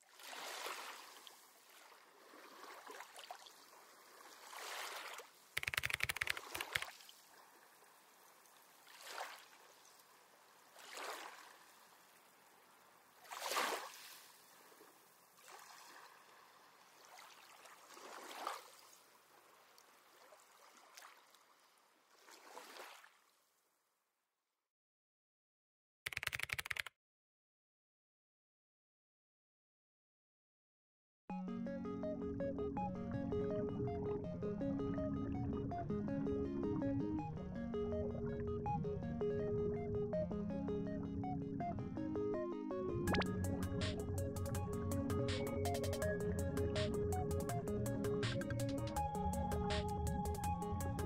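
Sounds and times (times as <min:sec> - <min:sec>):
water washing in soft swells: 0:00.0 - 0:05.6, 0:06.5 - 0:23.3.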